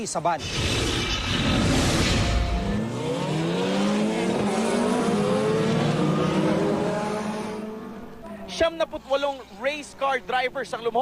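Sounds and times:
race car engines accelerating: 1.0 - 9.6.

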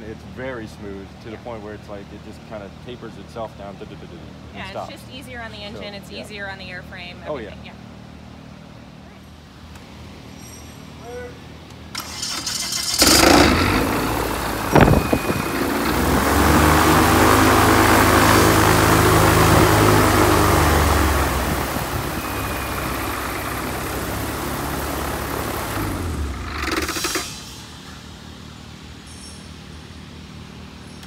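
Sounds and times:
aircraft engine running: 12.0 - 27.5.

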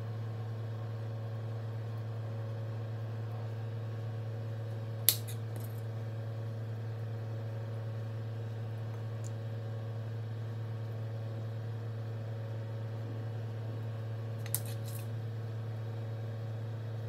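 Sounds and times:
steady low hum: 0.0 - 17.0
metal skewer clicking on plate: 5.1 - 5.7, 14.4 - 15.0.

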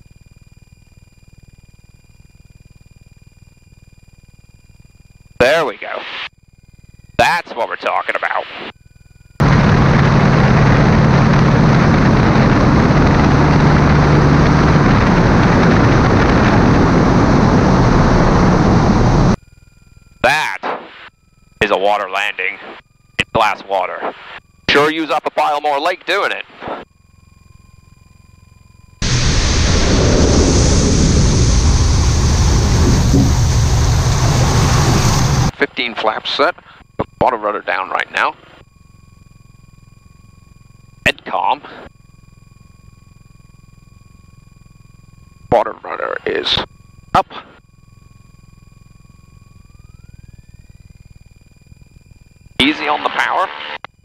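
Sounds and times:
faint cockpit hum: 0.0 - 54.0
aircraft engine and propeller: 7.8 - 20.2, 21.4 - 53.8.

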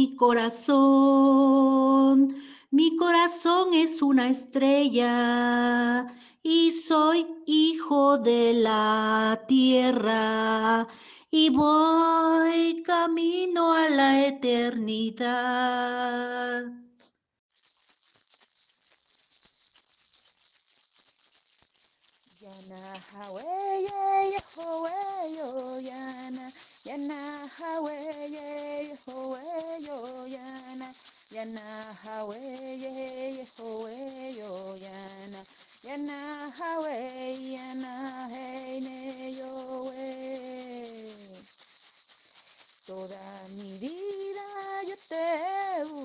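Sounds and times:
person singing wordless melody: 0.0 - 17.0, 22.4 - 41.5, 42.8 - 46.0
hand rattle shaken: 17.5 - 46.0.

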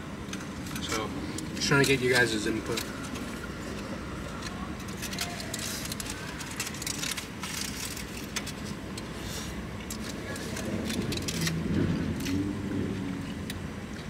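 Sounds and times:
aluminium foil crinkling: 1.6 - 12.4.

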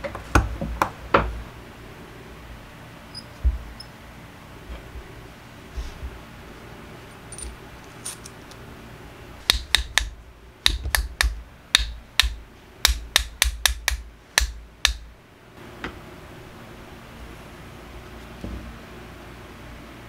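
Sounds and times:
mallet tapping steel shaft: 9.4 - 15.1.

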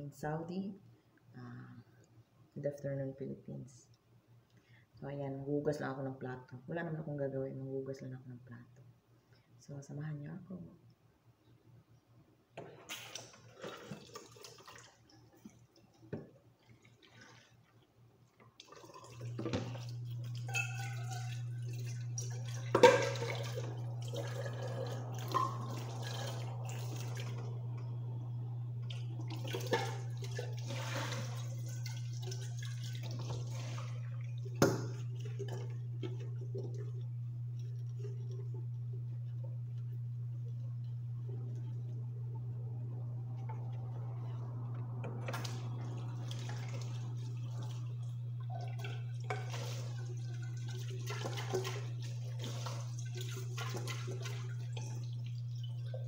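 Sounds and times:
tap water running and splashing: 12.6 - 17.8, 18.4 - 56.0
dishes clattering: 20.4 - 22.0
dishes clinking: 20.4 - 22.0.

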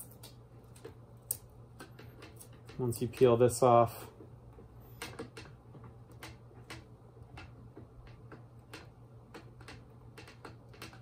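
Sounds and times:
tape peeling clicks and crackles: 0.0 - 3.5.

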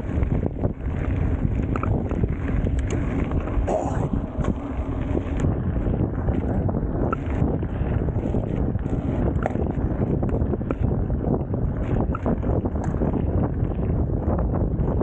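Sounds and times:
bike clicks and rattles: 0.0 - 15.0
tyres rumbling on dirt: 0.0 - 15.0
wind buffeting microphone: 0.0 - 15.0.

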